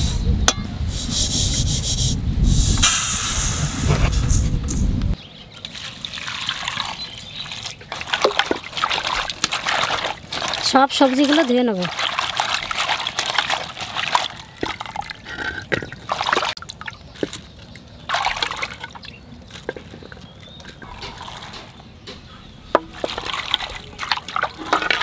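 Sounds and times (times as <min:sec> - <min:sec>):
hands splashing vegetables in water: 0:05.6 - 0:21.7, 0:22.8 - 0:25.0
water dripping: 0:05.6 - 0:25.0.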